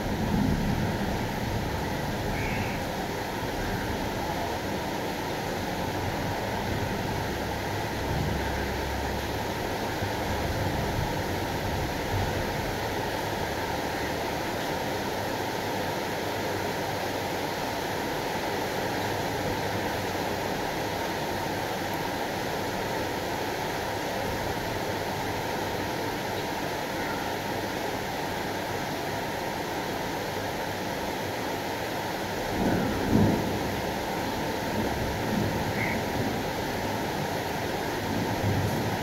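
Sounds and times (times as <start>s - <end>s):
thunder rumble: 0.0s - 4.4s, 32.5s - 39.0s
rain: 0.0s - 39.0s
wind: 0.0s - 39.0s.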